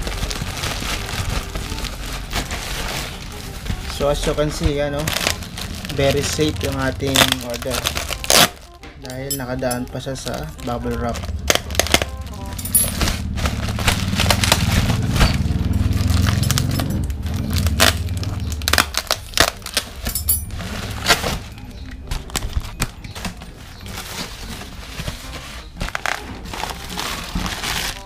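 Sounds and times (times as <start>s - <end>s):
low rumble: 0.0s - 8.2s
bubble wrap crackling: 0.0s - 28.0s.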